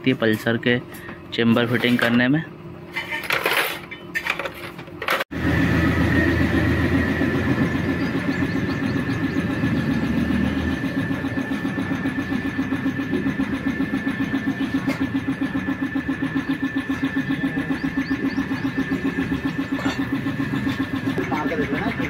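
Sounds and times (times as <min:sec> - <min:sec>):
small engine running: 0:03.2 - 0:22.0
heavy low rumble: 0:05.4 - 0:22.0.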